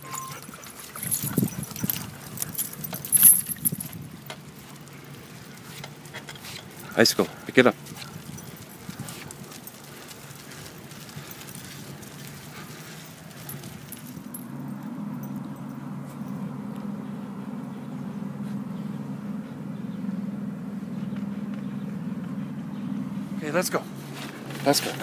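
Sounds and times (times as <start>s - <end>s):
metal chain leashes jingling: 0.0s - 16.5s
low engine hum: 0.0s - 25.0s
dog claws clicking on pavement: 0.4s - 14.4s.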